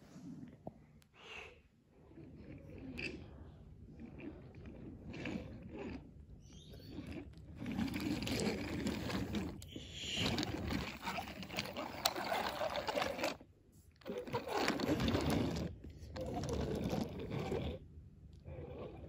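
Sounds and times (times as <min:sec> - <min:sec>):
toy train wheels rolling on wood: 0:07.6 - 0:13.4, 0:14.0 - 0:17.8.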